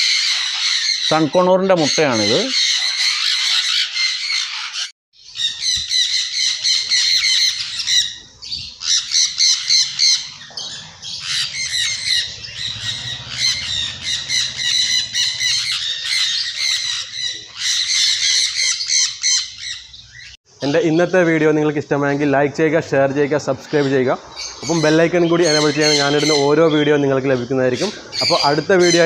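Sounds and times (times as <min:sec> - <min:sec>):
parrots squawking shrilly: 0:00.0 - 0:20.4, 0:23.6 - 0:29.0.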